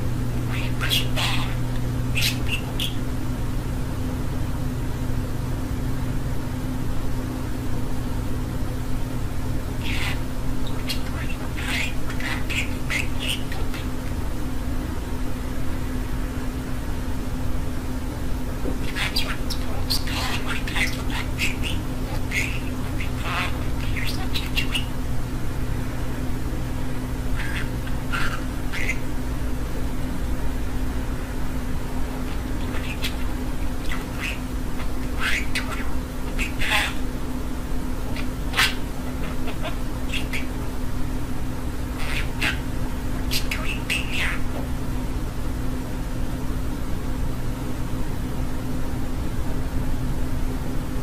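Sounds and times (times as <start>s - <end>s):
constant hiss: 0.0s - 51.0s
low electrical hum: 0.0s - 51.0s
budgerigar chattering phrases: 0.4s - 3.0s, 9.8s - 14.2s, 18.8s - 25.0s, 27.0s - 29.2s, 32.2s - 37.1s, 38.1s - 40.7s, 41.8s - 44.6s.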